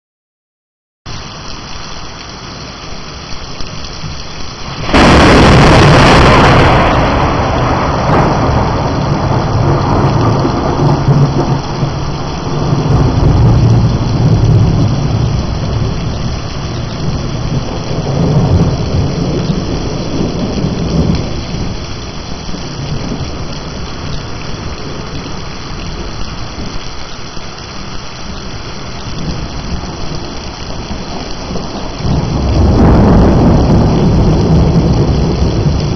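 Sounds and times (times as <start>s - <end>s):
heavy rain pouring: 1.1s - 35.9s
thunderclap and rumble: 3.9s - 35.9s.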